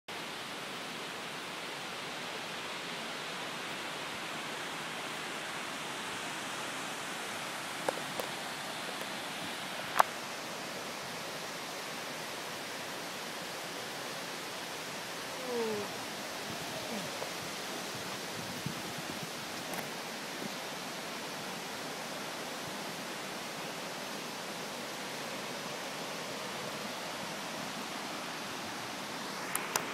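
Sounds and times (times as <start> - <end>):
river rushing over rocks: 0.1 - 29.9.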